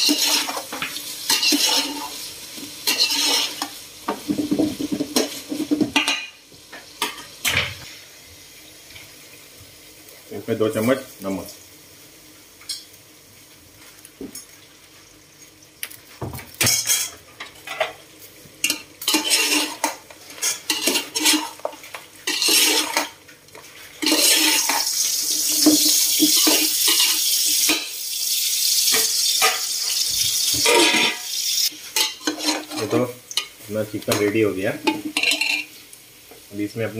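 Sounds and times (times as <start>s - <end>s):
metal spoon scraping pot: 0.0s - 0.6s, 1.3s - 2.2s, 2.8s - 3.7s, 18.7s - 21.6s, 22.3s - 23.1s, 24.0s - 24.9s, 32.0s - 33.0s, 34.9s - 35.7s
chicken sizzling in pot: 0.0s - 36.9s.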